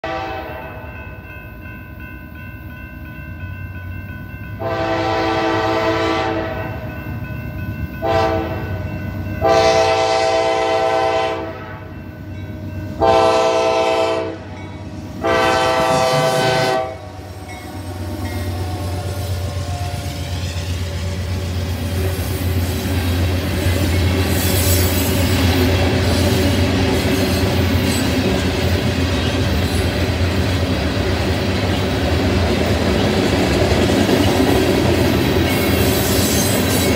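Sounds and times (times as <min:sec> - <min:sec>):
locomotive air horn blasts: 0:00.0 - 0:00.8, 0:04.6 - 0:06.8, 0:08.0 - 0:08.7, 0:09.4 - 0:11.9, 0:13.0 - 0:14.6, 0:15.2 - 0:17.3
locomotive engine rumbling: 0:03.4 - 0:36.9.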